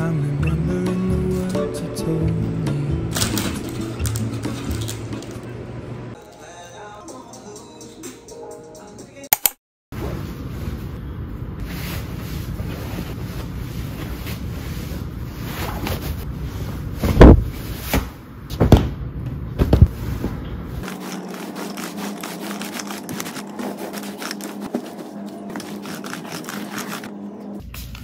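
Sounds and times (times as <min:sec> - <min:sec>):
bedding rustling: 0:11.6 - 0:18.2, 0:19.6 - 0:27.2
pillows thumping onto mattress: 0:19.6 - 0:20.0
sheet being smoothed: 0:19.9 - 0:27.2.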